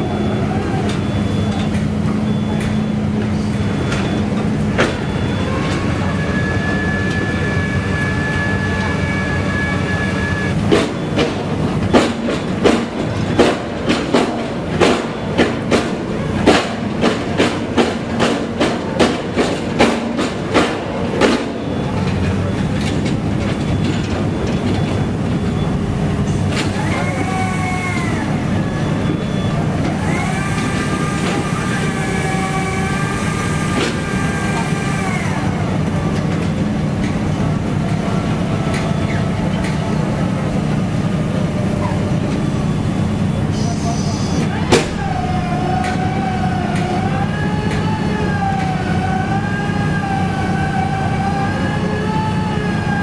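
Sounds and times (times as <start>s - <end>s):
high metal squeals: 0.0s - 11.2s, 21.5s - 36.3s, 37.2s - 53.0s
diesel engine running: 0.0s - 53.0s.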